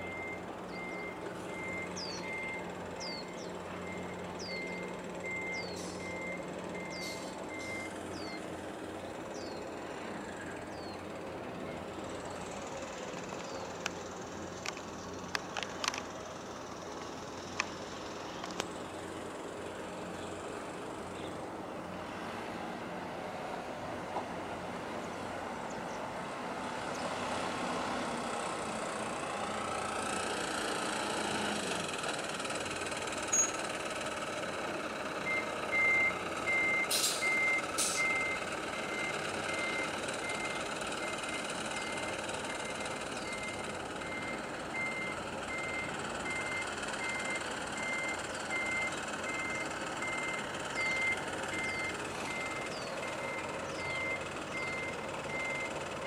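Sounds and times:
reversing alarm beeping: 0.0s - 8.4s, 33.3s - 33.7s, 35.2s - 55.8s
traffic and engine noise: 0.0s - 56.0s.

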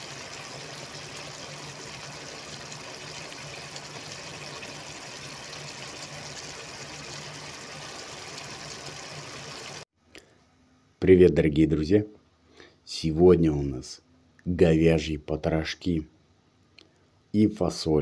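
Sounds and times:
sauce bubbling and sizzling: 0.0s - 9.9s.

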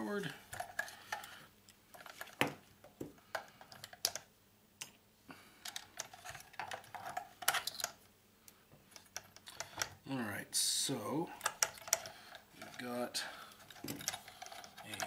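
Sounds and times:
metal tools clinking on plastic case: 13.6s - 15.0s.

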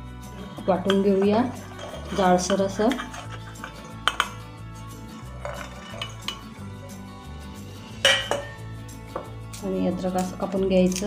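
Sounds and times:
steel plate and jar clinking: 0.4s - 7.1s, 7.9s - 9.3s.

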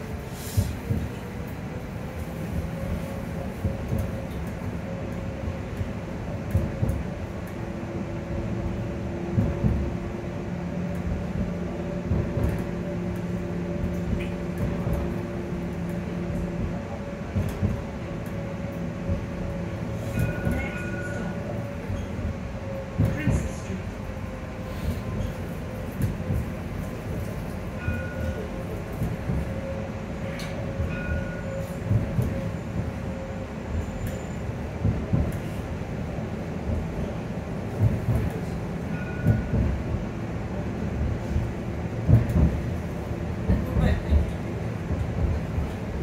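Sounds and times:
low rumble of tram car: 0.0s - 46.0s
tram electric drive whining: 0.0s - 46.0s.

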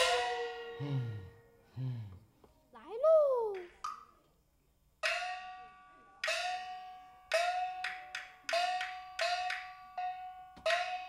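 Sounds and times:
pitched percussion strokes ringing: 0.0s - 1.6s.

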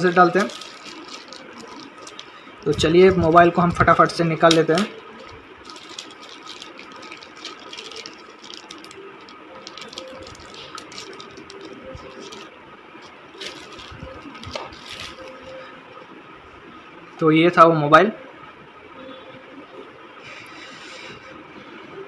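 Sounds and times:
plastic bag crinkling: 0.0s - 15.6s.

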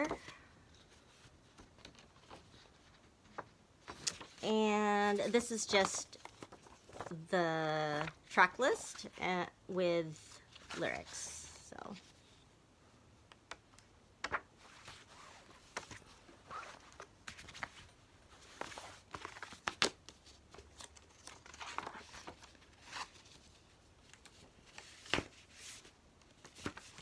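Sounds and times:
paper and cardboard rustling: 0.0s - 4.4s, 5.0s - 7.3s, 14.2s - 27.0s.

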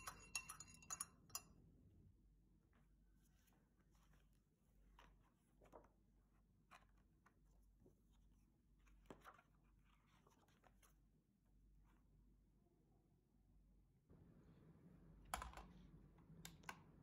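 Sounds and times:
book pages turning: 3.3s - 11.2s.

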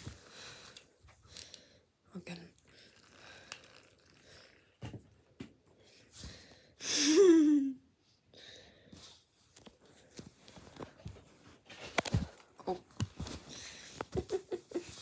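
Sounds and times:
person sighing: 6.8s - 7.8s.

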